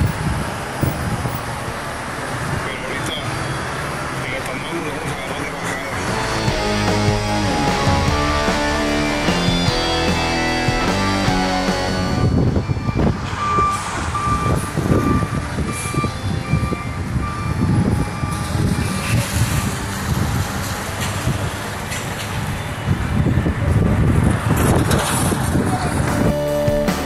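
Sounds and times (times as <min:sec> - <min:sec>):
low street noise: 0:00.0 - 0:27.0
reversing alarm beeping: 0:06.7 - 0:20.3.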